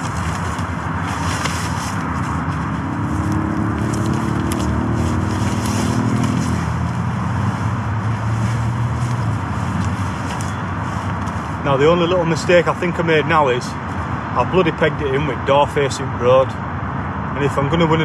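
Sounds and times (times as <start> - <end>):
vehicle engine passing: 0.0 - 11.6
fabric scraping and rustling: 0.0 - 12.0
road traffic: 0.0 - 18.0.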